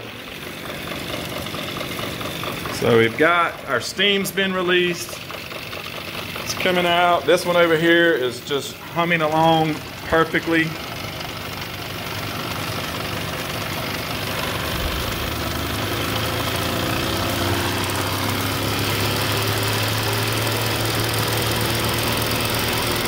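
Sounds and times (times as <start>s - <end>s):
steam engines hissing: 14.1s - 18.5s.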